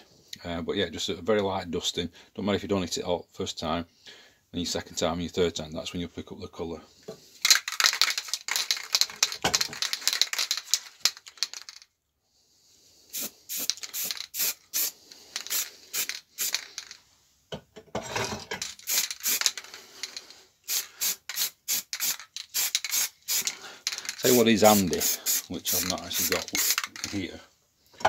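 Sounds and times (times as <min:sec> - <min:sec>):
spray can ball rattling: 0:07.4 - 0:11.9, 0:13.1 - 0:17.0, 0:18.6 - 0:27.4
spray can hissing: 0:13.1 - 0:17.0, 0:18.6 - 0:27.2.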